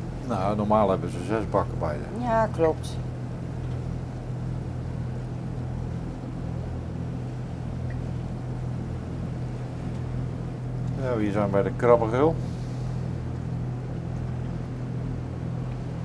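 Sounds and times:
boat engine humming: 0.0s - 16.0s.

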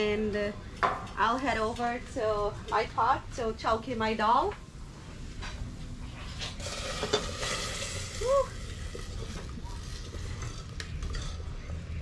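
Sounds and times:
hot oil sizzling: 6.6s - 10.6s.

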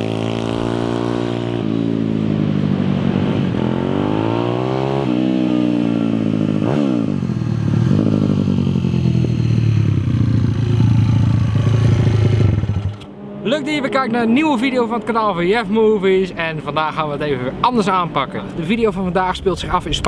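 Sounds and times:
small motorcycle engine revving: 0.0s - 13.2s.

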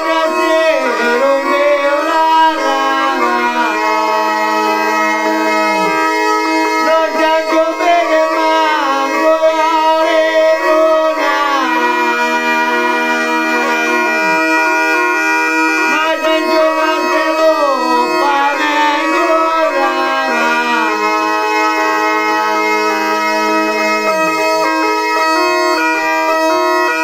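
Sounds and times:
man singing: 0.0s - 4.8s, 6.8s - 14.3s, 15.8s - 21.3s
bagpipe melody over drones: 0.0s - 27.0s.

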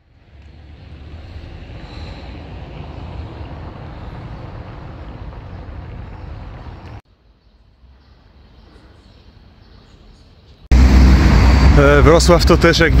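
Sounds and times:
street ambience: 0.0s - 13.0s
rushing noise with low rumble: 10.7s - 13.0s.

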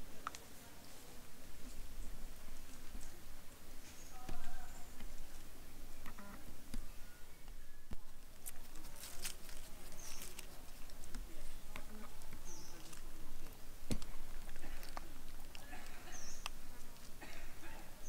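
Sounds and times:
small clicks and rustles: 8.2s - 17.4s.

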